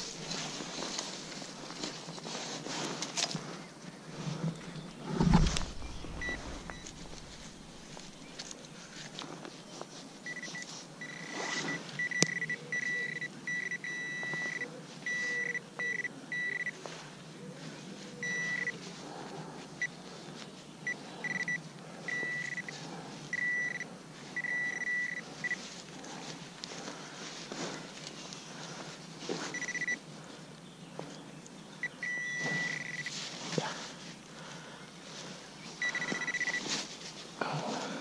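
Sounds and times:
metal detector beeping: 0:05.4 - 0:08.2, 0:10.2 - 0:16.8, 0:18.2 - 0:18.8, 0:20.8 - 0:25.6, 0:29.5 - 0:30.0, 0:31.8 - 0:33.2, 0:35.8 - 0:36.7.

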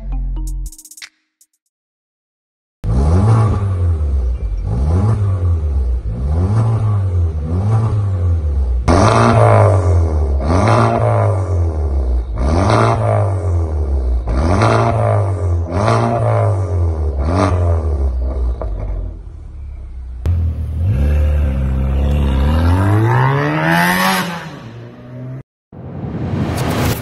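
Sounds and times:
car accelerating hard: 0:02.8 - 0:19.2, 0:20.2 - 0:25.4
car engine revving: 0:02.8 - 0:25.4
car engine idling: 0:18.0 - 0:22.4.

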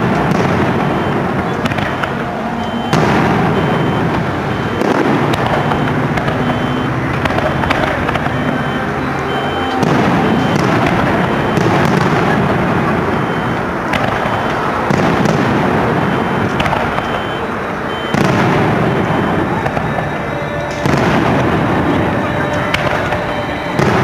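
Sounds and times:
fireworks booming: 0:00.0 - 0:24.0
sharp fireworks cracks: 0:00.0 - 0:24.0.

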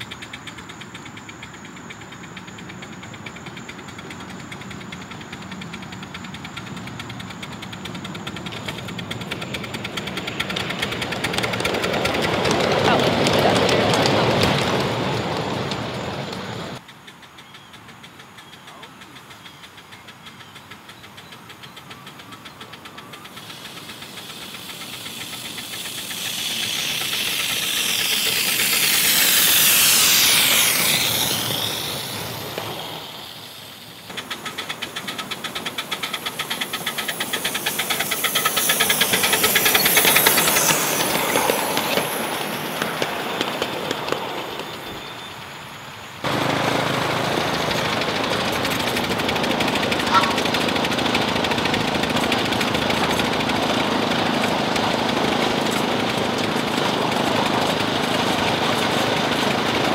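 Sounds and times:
steam hiss: 0:00.0 - 0:59.9
steam locomotive chuffing: 0:00.0 - 0:59.9
steady noise: 0:22.2 - 0:56.2.

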